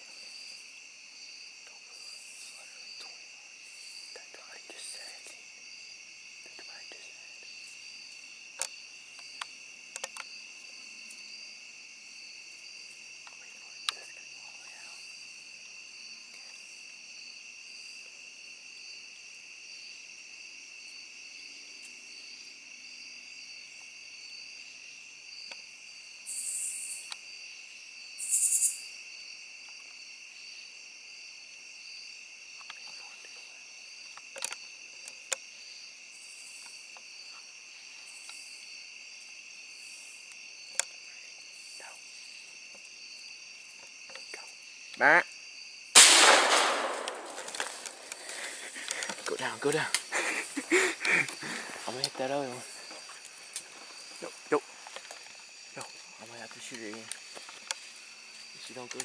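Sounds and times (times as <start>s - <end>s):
crickets trilling: 0.0s - 59.0s
sharp clicks: 46.0s - 49.3s.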